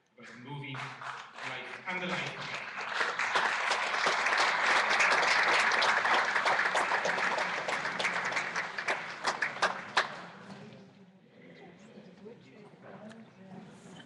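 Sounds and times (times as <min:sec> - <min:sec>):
audience applauding: 0:00.3 - 0:10.6.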